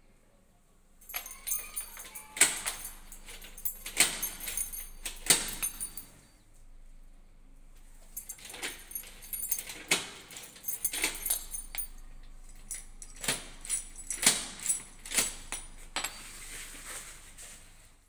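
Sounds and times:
metallic lock clicks and clacks: 1.1s - 6.1s, 8.2s - 16.1s.

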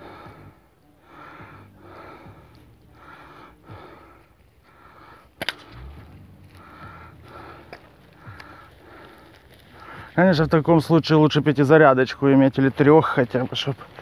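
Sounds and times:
air rifle crack: 5.1s - 8.8s.

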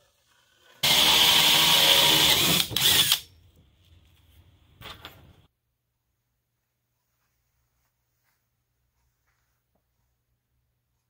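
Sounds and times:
drill with hole saw cutting wood: 0.8s - 3.3s.

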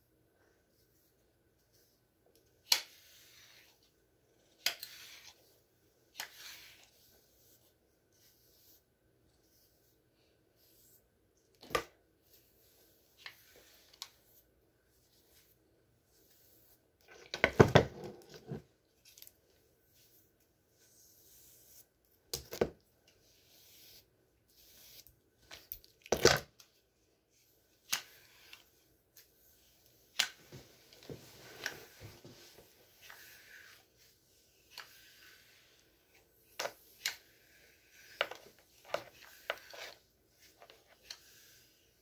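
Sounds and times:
scratchy rustling of hair: 27.3s - 42.0s.

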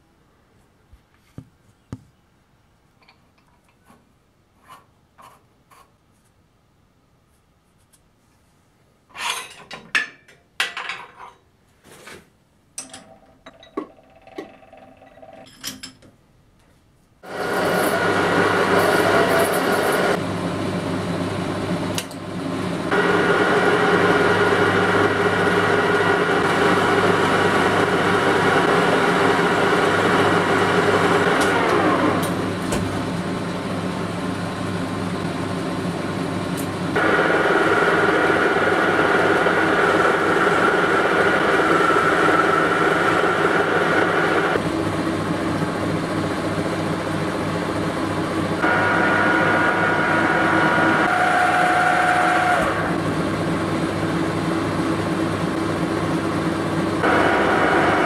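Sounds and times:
metal lathe gear whine: 17.3s - 20.2s, 37.0s - 44.6s, 48.0s - 54.0s, 56.3s - 58.0s.

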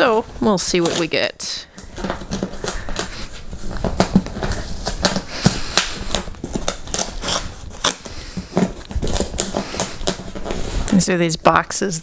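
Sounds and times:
cardboard box being torn: 1.9s - 10.9s.

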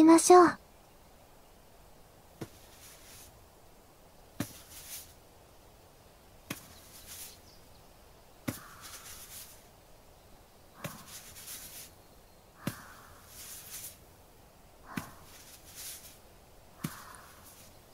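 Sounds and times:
short rustle: 2.4s - 3.4s, 4.4s - 5.2s, 6.5s - 7.4s, 8.5s - 9.7s, 10.8s - 12.0s, 13.2s - 14.0s, 14.9s - 17.8s.

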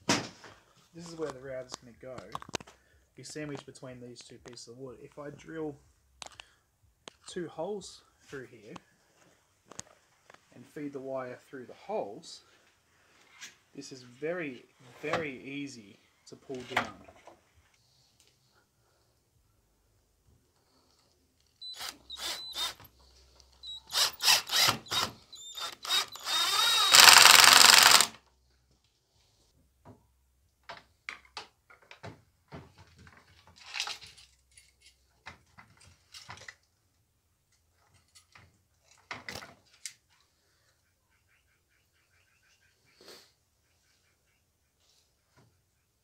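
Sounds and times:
power drill drilling wood: 21.6s - 22.9s, 23.6s - 28.2s.

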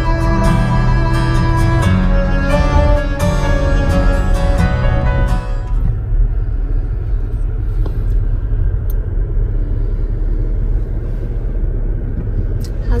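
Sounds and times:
music track: 0.0s - 6.0s
car driving rumble: 0.0s - 13.0s.

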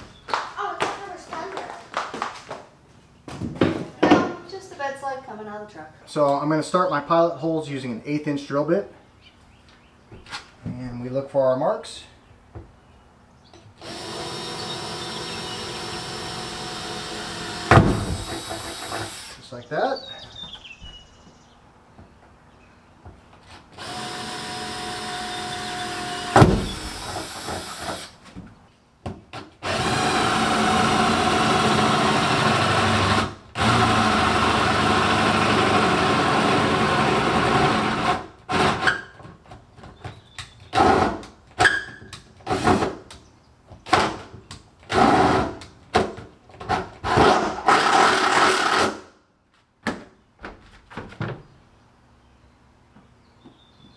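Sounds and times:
cordless drill boring metal: 13.8s - 19.4s, 23.8s - 28.1s, 29.6s - 39.0s.

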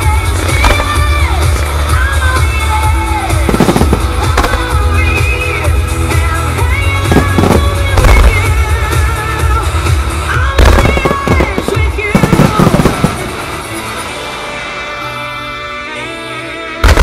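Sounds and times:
music playing: 0.0s - 17.0s
firework booms and bangs: 0.4s - 2.0s, 3.3s - 4.9s, 7.0s - 8.6s, 10.6s - 13.6s.

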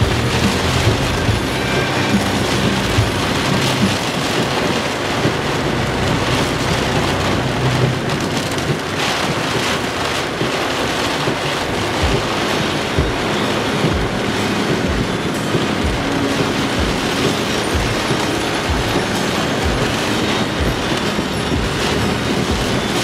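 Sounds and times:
low thumps: 0.0s - 4.5s
rain hitting car windshield: 0.0s - 23.0s
tyre and road noise: 0.0s - 23.0s.

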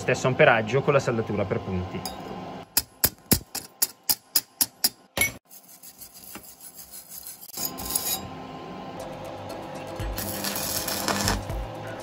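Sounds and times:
wire brush scrubbing metal: 5.4s - 8.3s, 10.2s - 11.6s.

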